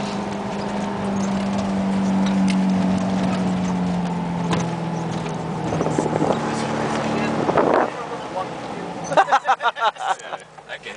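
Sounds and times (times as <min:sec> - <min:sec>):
engine pulling hard: 0:00.0 - 0:10.9
vehicle body rattling and knocking: 0:00.4 - 0:06.3.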